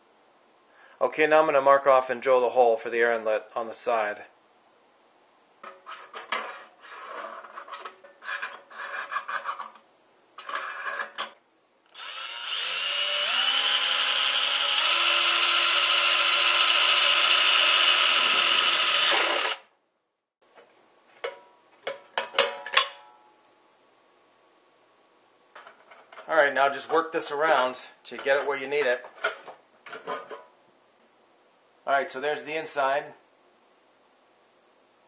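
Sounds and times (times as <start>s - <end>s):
scratchy scraping on metal: 5.6s - 9.8s, 10.4s - 11.4s
cordless drill drilling steel: 11.9s - 19.7s.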